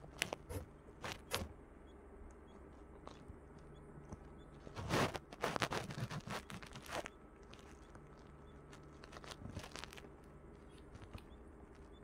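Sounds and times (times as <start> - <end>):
crackles: 0.0 - 1.5, 2.2 - 12.0
rustling and crinkling handling noise: 2.6 - 12.0.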